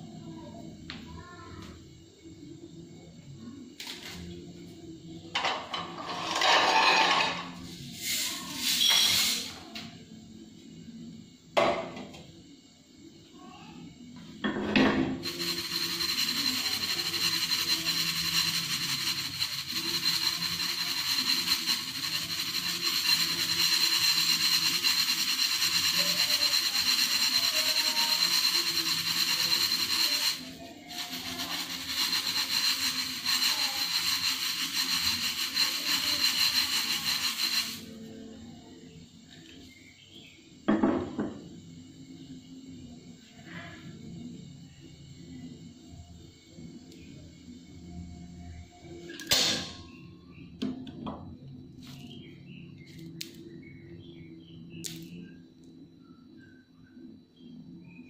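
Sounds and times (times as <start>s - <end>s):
beads rattling in metal pan: 15.2s - 37.8s.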